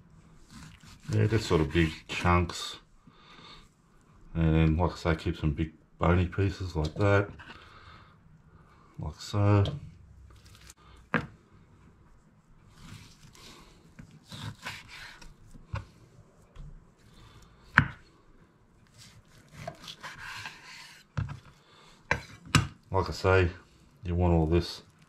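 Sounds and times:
knife slicing and scraping meat: 0.4s - 2.2s, 12.7s - 15.9s, 18.8s - 22.6s.

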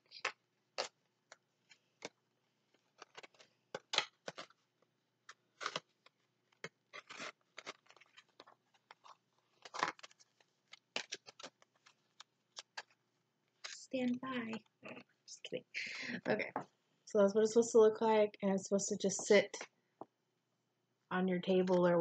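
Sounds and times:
paper crinkling and tapping: 0.0s - 15.2s.

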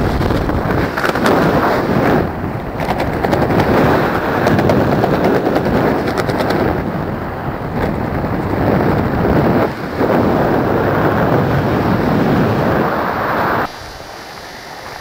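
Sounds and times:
rapid crackling: 0.0s - 14.0s
wind buffeting microphone: 0.0s - 15.0s.

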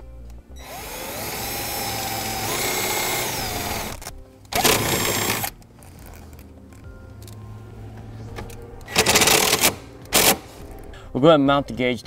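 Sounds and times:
cordless drill driving screw into metal: 0.6s - 5.5s.

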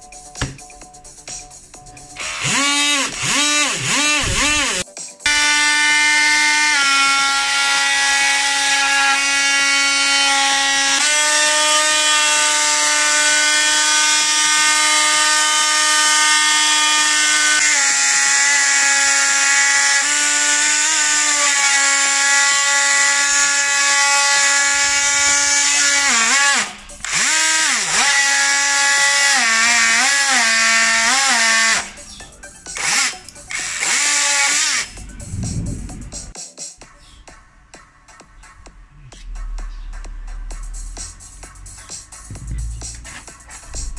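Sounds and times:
power tool motor whine: 2.2s - 32.0s, 32.8s - 34.9s
saw blade rasping wood: 2.2s - 32.0s, 32.7s - 34.9s.

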